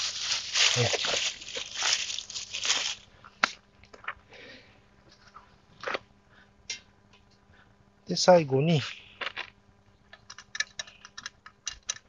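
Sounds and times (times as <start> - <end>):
plastic bag crinkling: 0.0 - 3.1.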